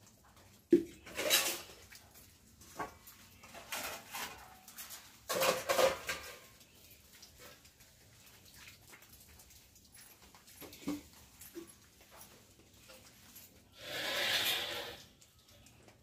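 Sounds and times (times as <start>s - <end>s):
scrubbing steel utensils: 0.7s - 8.2s, 10.2s - 15.2s
metal dish clanking: 5.2s - 6.5s.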